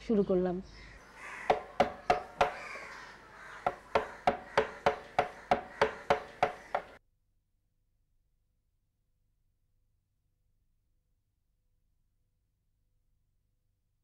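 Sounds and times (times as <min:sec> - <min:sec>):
chisel struck into wood: 0:01.5 - 0:02.8, 0:03.6 - 0:07.0.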